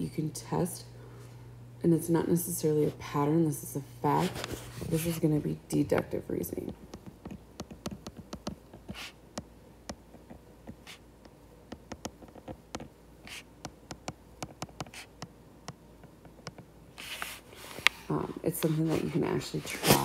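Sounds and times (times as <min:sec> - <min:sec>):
stylus tapping on glass screen: 0:06.9 - 0:10.8, 0:11.7 - 0:12.9.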